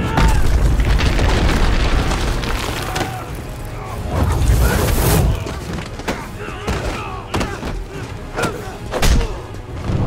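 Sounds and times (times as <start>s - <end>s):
film score music: 0.0s - 10.0s
fire flaring up: 0.8s - 5.5s.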